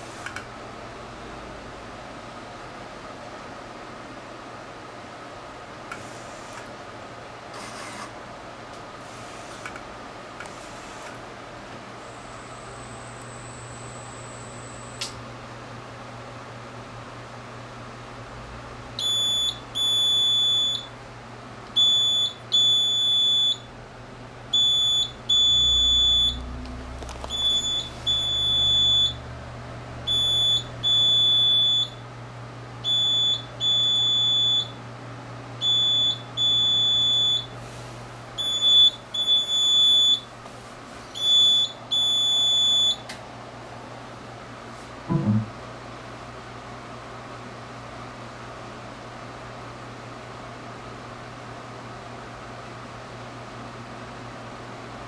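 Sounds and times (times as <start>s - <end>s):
printer alarm beeping: 12.0s - 15.1s, 19.0s - 20.9s, 21.8s - 23.7s, 24.5s - 26.5s, 27.2s - 29.3s, 30.1s - 32.0s, 32.8s - 34.8s, 35.6s - 37.6s, 38.4s - 40.3s, 41.2s - 43.0s.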